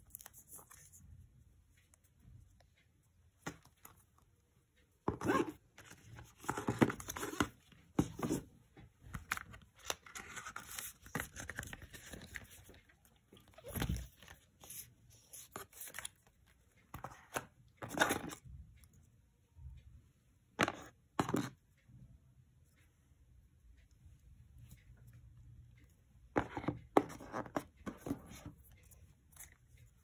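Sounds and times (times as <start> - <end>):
paper and cardboard rustling: 9.2 - 12.8.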